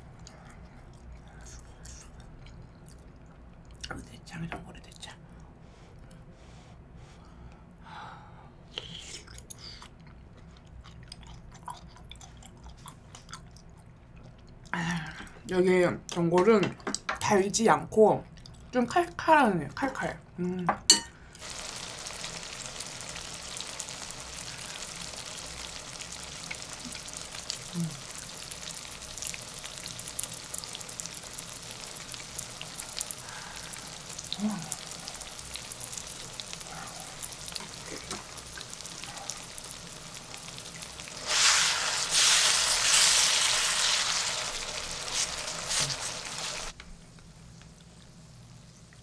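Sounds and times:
meat sizzling on grill pan: 21.4s - 46.8s.

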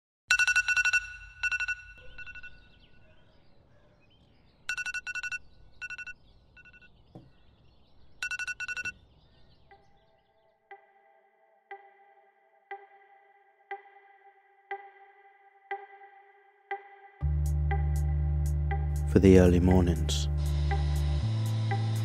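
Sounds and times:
phone alarm beeping: 0.3s - 3.0s, 4.7s - 7.0s, 8.2s - 9.0s
soft synth music tone: 9.7s - 22.0s.

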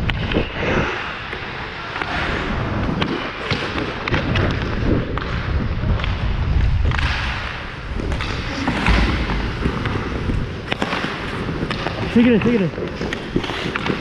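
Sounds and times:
wind rumble on microphone: 0.0s - 14.0s
ice skates scraping on ice: 0.1s - 14.0s.

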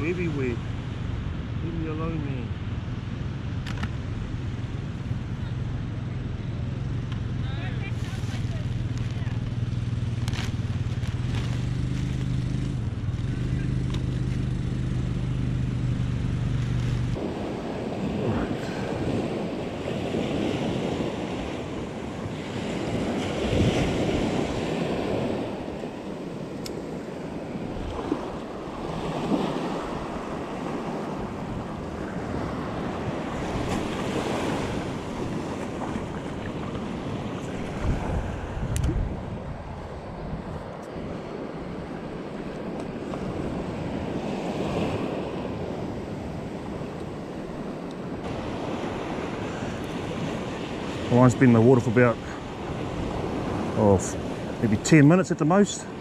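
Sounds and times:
surf washing: 0.0s - 2.7s, 3.7s - 56.0s
wind: 0.0s - 56.0s
motor engine droning: 0.6s - 51.1s.

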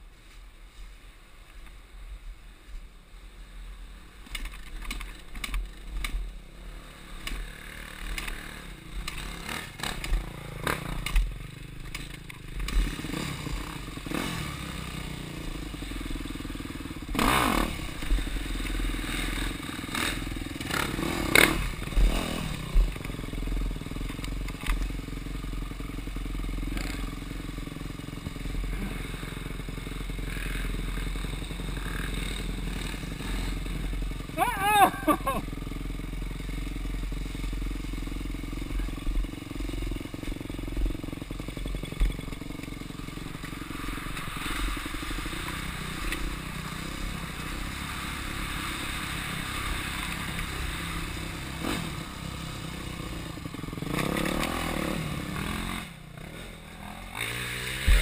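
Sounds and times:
dirt bike engine revving: 6.5s - 58.0s.

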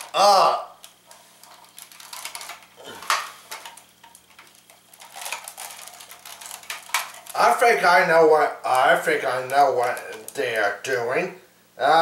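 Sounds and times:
plastic figures clicking: 0.0s - 7.5s, 8.7s - 10.8s.

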